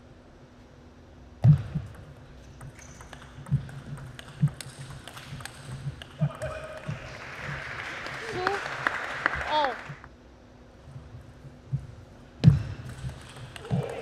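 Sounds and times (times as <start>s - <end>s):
table tennis ball clicking: 1.8s - 7.0s, 12.8s - 14.0s.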